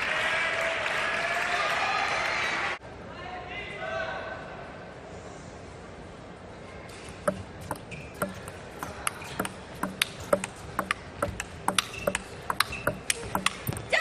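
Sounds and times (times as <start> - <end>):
table tennis ball clicking: 7.3 - 14.0.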